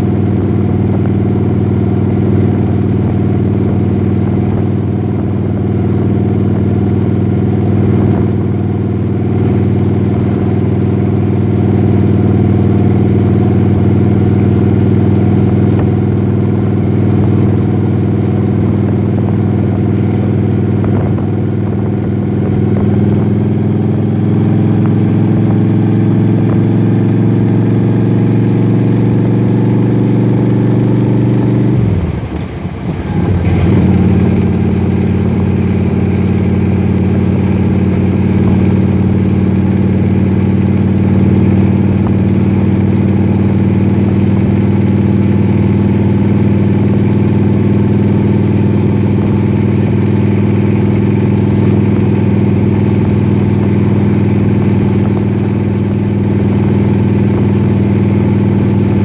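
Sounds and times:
vehicle engine hum: 0:00.0 - 0:59.0.

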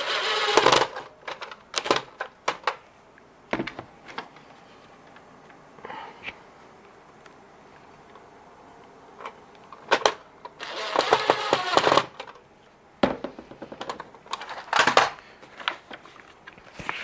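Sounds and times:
cordless driver motor: 0:00.0 - 0:01.1, 0:10.6 - 0:12.2
plastic parts clattering: 0:00.0 - 0:02.8, 0:09.2 - 0:12.4, 0:13.0 - 0:16.4.

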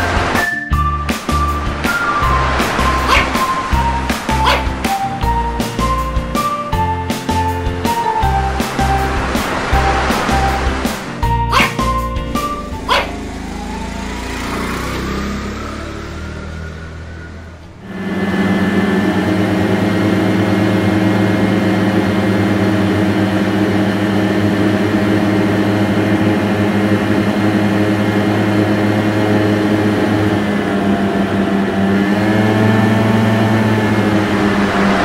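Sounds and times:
small scooter engine: 0:12.4 - 0:35.0.

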